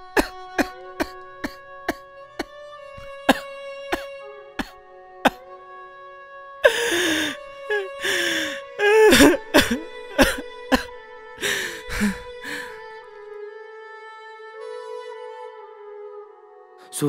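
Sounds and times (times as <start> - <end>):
soft background music: 0.0 - 5.5, 6.6 - 17.0
man sobbing: 6.7 - 12.8.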